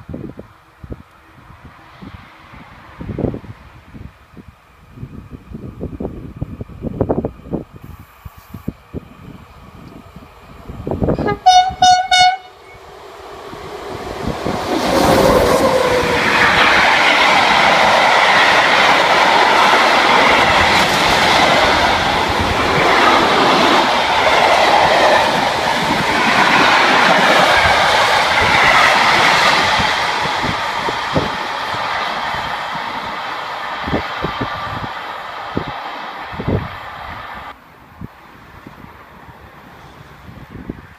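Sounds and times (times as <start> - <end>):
freight train rumbling over rails: 0.0 - 7.9, 8.8 - 40.9
locomotive horn blasts: 11.2 - 12.8.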